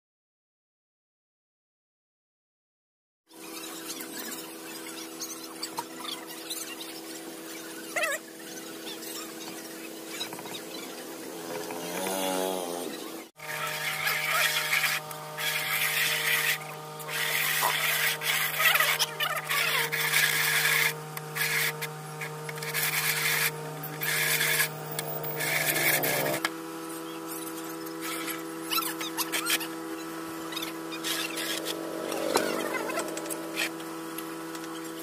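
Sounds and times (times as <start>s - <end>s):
steady hum: 14.6s - 26.8s, 29.7s - 34.6s
pencil scratching on plywood: 22.6s - 26.4s.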